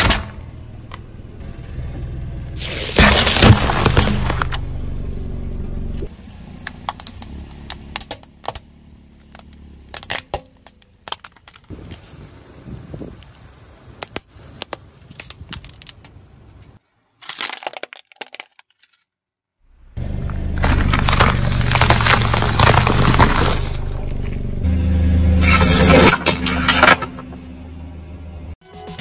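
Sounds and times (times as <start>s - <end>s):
plastic toys cracking under tyre: 2.6s - 4.6s, 6.6s - 12.1s, 14.0s - 19.0s, 20.6s - 24.3s.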